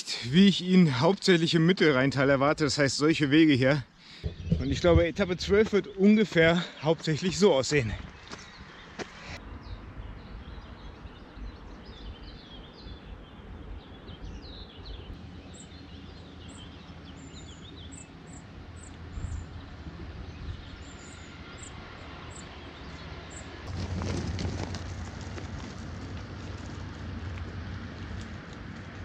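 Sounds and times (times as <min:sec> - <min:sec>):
birds singing and chirping: 0:02.6 - 0:24.2.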